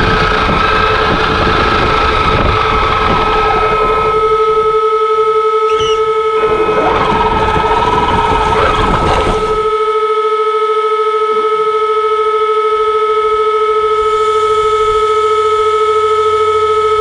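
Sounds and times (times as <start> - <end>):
low rumble of pushing snow: 0.0 - 4.8, 6.2 - 9.8
steady high electric whine: 0.0 - 11.2
wavering motor whine: 0.0 - 17.0.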